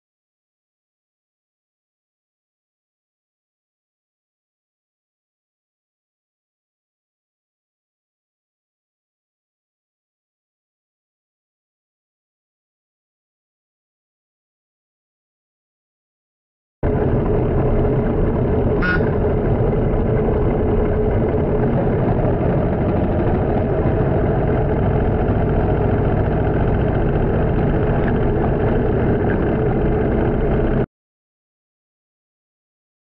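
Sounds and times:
motorcycle engine running: 16.8s - 30.9s.

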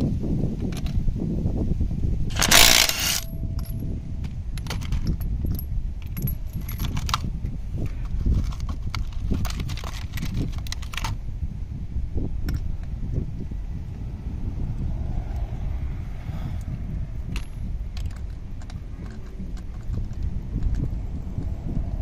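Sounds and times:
impact wrench burst: 2.3s - 3.8s
metallic clicks and clinks: 2.3s - 7.3s, 17.3s - 20.9s.

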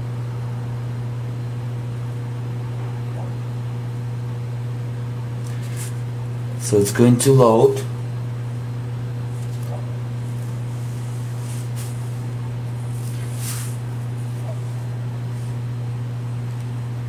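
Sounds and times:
steady low hum: 0.0s - 17.0s
faint rustles: 9.2s - 15.7s.

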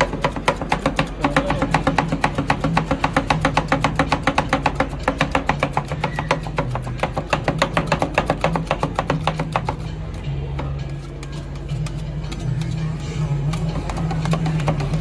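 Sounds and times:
metal spatula chopping on steel: 0.0s - 10.2s, 10.9s - 15.0s
background music: 0.0s - 15.0s.

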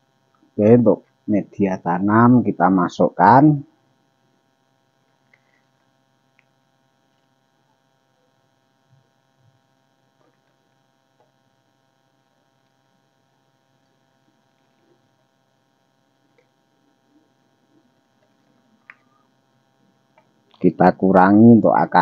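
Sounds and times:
faint steady hum: 0.0s - 22.0s.

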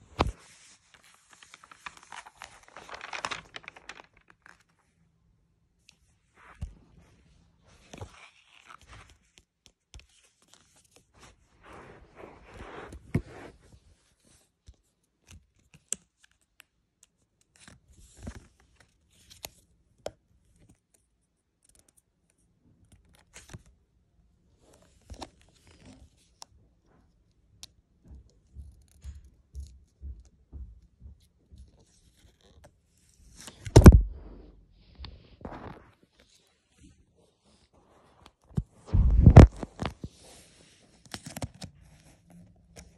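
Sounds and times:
bump against microphone: 38.9s - 39.6s.

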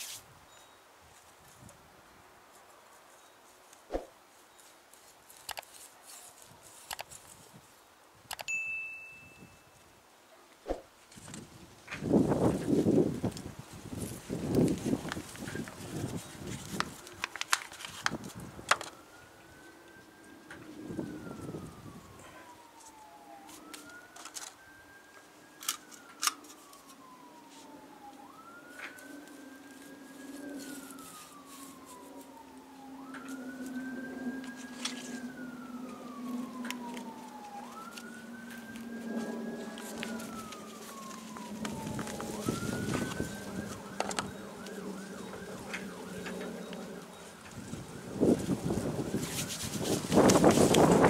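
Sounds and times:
sharp clicks: 5.4s - 5.7s, 6.9s - 7.1s, 8.3s - 8.5s
emergency siren wailing: 11.4s - 51.0s.

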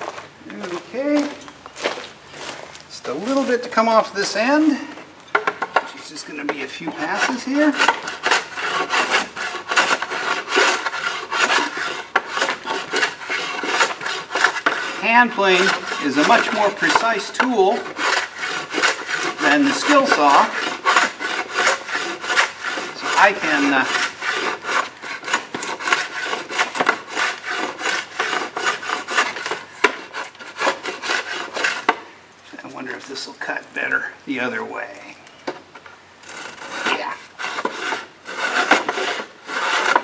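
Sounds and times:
hand plane shaving wood: 3.0s - 5.0s, 6.0s - 32.0s, 36.3s - 40.0s.

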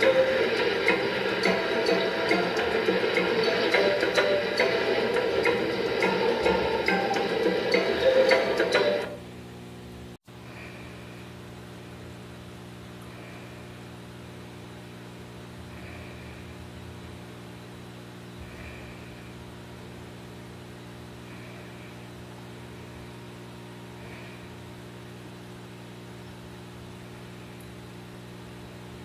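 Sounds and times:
air and water hissing: 0.0s - 8.9s
air pump humming: 0.0s - 29.0s.

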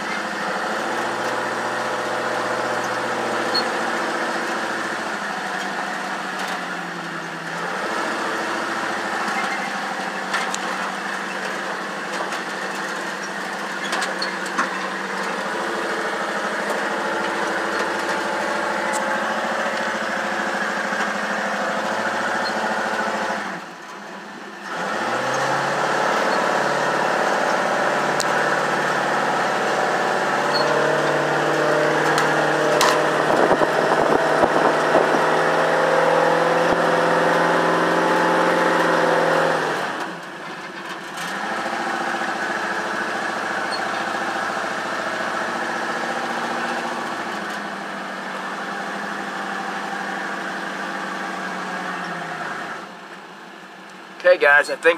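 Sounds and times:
truck engine revving: 0.0s - 54.9s.

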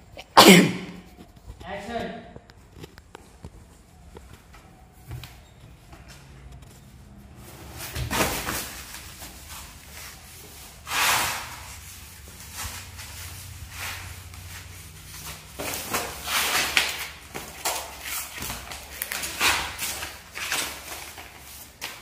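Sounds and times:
cardboard scraping: 7.3s - 21.9s.

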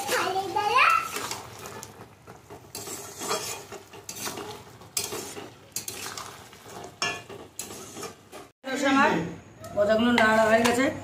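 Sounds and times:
metal spatula scraping metal pan: 1.0s - 8.5s.

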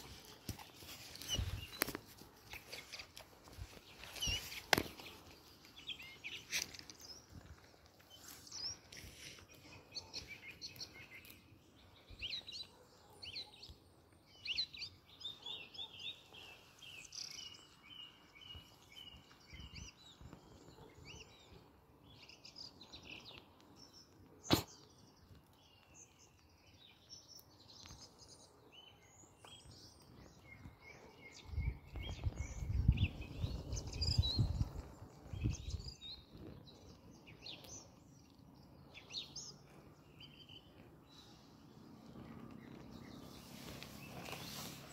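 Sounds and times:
small birds chirping and singing: 0.0s - 44.9s.

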